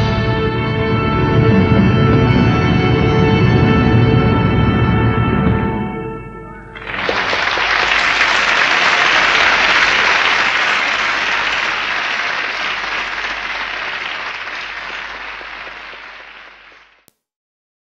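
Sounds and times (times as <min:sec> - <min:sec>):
audience applauding: 0:06.8 - 0:17.1.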